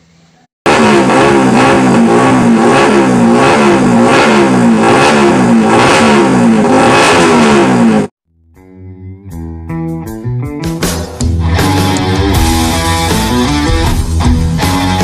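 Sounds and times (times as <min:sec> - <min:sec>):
motorcycle engine revving: 0:00.7 - 0:08.2.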